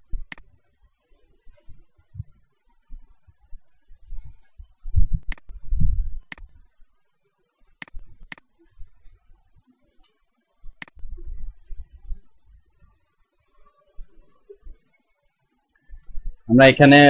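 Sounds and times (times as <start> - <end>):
computer mouse clicking: 0.2 - 0.5, 5.2 - 5.5, 6.3 - 6.5, 7.8 - 8.4, 10.8 - 11.0.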